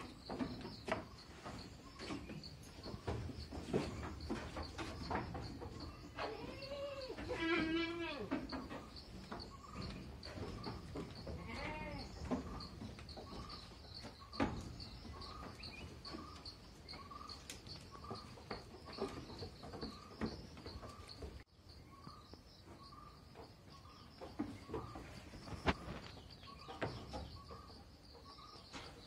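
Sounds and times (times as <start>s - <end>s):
goat bleating: 6.2s - 8.4s, 11.4s - 12.1s.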